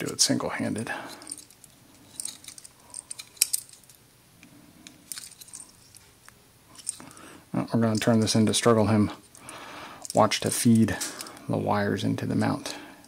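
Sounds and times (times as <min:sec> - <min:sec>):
clicks and clinks of plastic parts: 0:01.1 - 0:04.0, 0:04.8 - 0:07.1.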